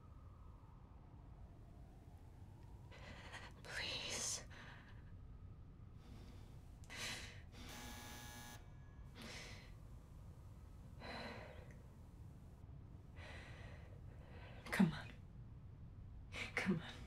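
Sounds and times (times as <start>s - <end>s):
woman breathing heavily: 2.8s - 7.8s, 9.1s - 10.2s, 10.8s - 14.8s
buzzing tone: 7.7s - 8.8s.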